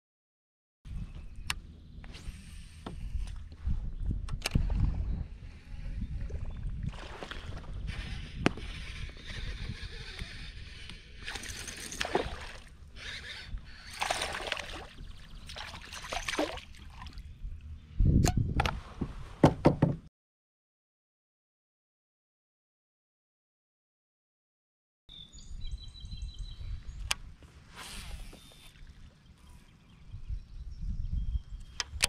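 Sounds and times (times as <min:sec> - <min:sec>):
wind on microphone: 0:00.9 - 0:19.5, 0:25.3 - 0:32.0
fish splashing at water surface: 0:13.9 - 0:17.2.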